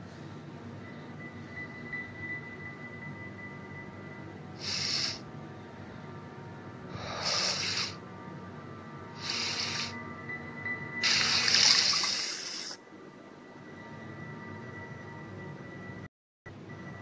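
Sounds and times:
quiet music drone: 0:00.0 - 0:17.0
short hissing sounds: 0:04.6 - 0:05.2, 0:07.0 - 0:08.0, 0:09.2 - 0:10.0, 0:11.0 - 0:12.8.

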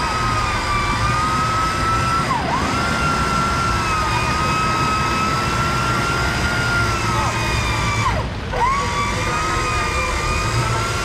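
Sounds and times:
electric winch motor whine: 0:00.0 - 0:11.0.

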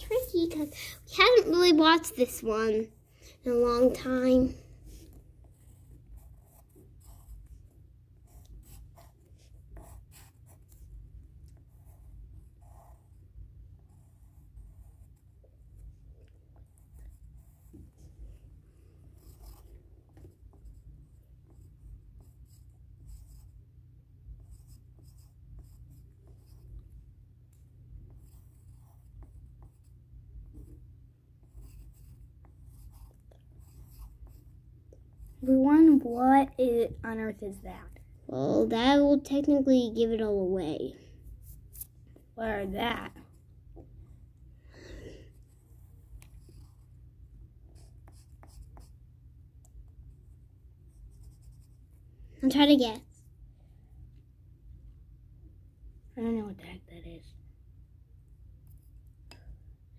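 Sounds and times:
pencil scratching on paper: 0:00.0 - 0:23.6, 0:24.3 - 0:27.0, 0:27.6 - 0:38.0, 0:45.3 - 0:47.1, 0:47.7 - 0:49.0, 0:50.2 - 0:52.6.

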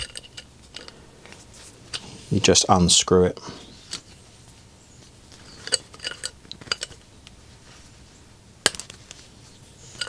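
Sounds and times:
metal tools clinking: 0:00.0 - 0:01.0, 0:05.4 - 0:07.0, 0:09.8 - 0:10.0.

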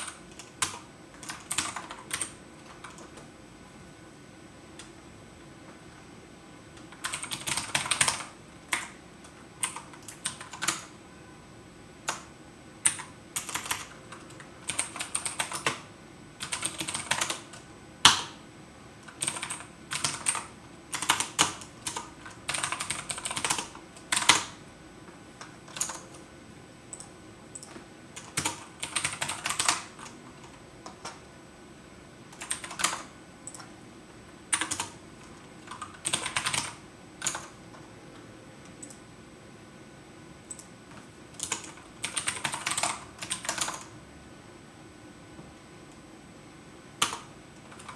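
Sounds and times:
typing on computer keyboard: 0:00.0 - 0:03.3, 0:06.8 - 0:10.9, 0:12.0 - 0:18.4, 0:19.0 - 0:24.6, 0:25.4 - 0:26.2, 0:26.9 - 0:31.2, 0:32.3 - 0:33.7, 0:34.5 - 0:37.6, 0:40.5 - 0:43.9, 0:47.0 - 0:47.9.

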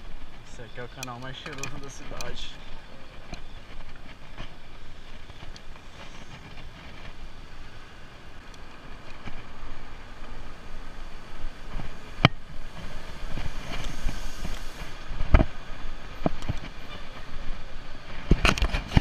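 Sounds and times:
bicycle rattling and rumbling: 0:00.0 - 0:19.0
wind on microphone: 0:10.8 - 0:19.0.

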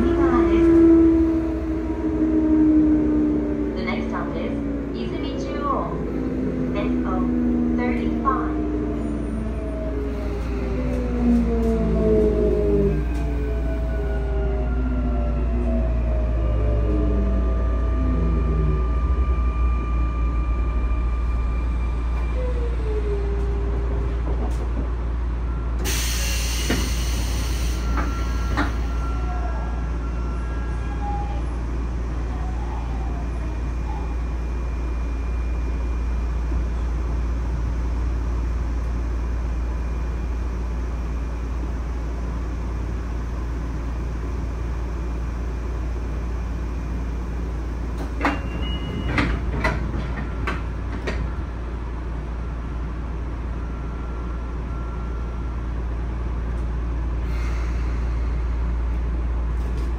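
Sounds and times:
train low hum: 0:00.0 - 0:59.9.

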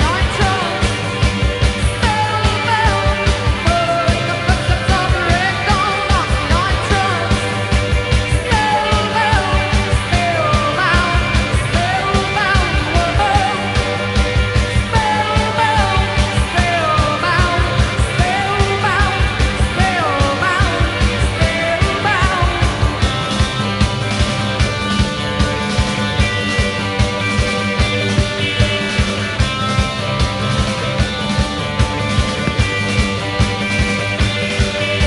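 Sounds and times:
woman singing: 0:00.0 - 0:23.2
driving drumbeat: 0:00.0 - 0:35.0
rock band playing: 0:00.0 - 0:35.0.

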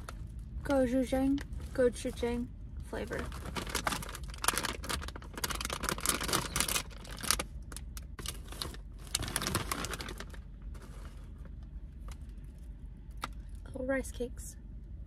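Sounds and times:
plastic packaging crinkling: 0:03.1 - 0:11.4.

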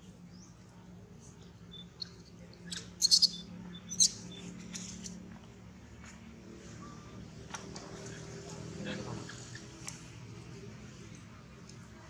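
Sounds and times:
baby monkey shrill squeals: 0:02.7 - 0:04.2.

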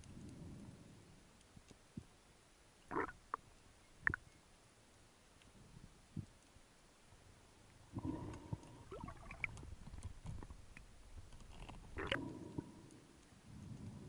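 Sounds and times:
underwater clicks and rustling: 0:00.0 - 0:02.2, 0:07.6 - 0:14.0.

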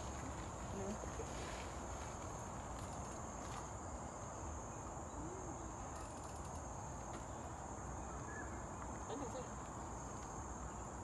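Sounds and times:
high-pitched insect chorus: 0:00.0 - 0:11.0
outdoor background noise: 0:00.0 - 0:11.0.

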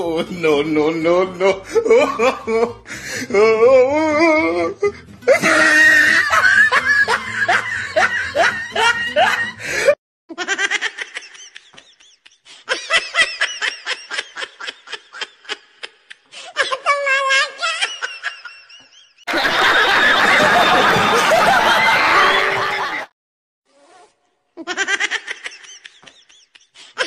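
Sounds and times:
hearty laughing: 0:04.9 - 0:16.3, 0:17.7 - 0:23.1, 0:24.6 - 0:27.0.

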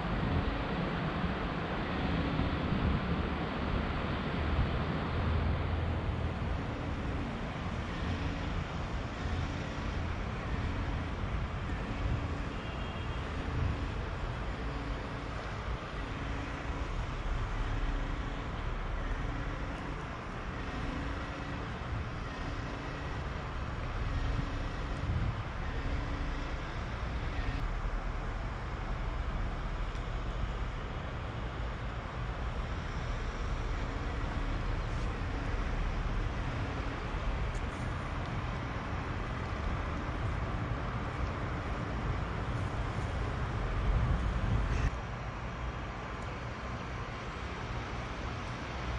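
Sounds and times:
distant road traffic rumble: 0:00.0 - 0:48.9.

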